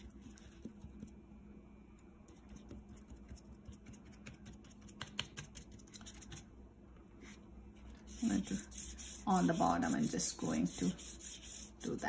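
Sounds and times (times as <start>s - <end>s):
sponge brush dabbing paper: 7.2s - 12.0s.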